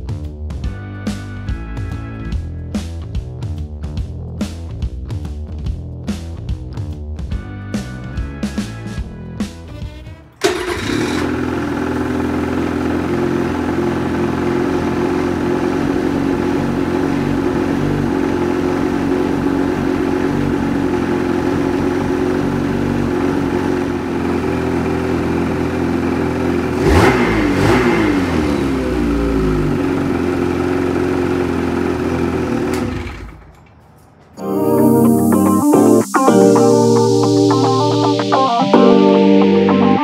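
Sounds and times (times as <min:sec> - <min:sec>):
snowmobile engine running: 0:10.4 - 0:33.2.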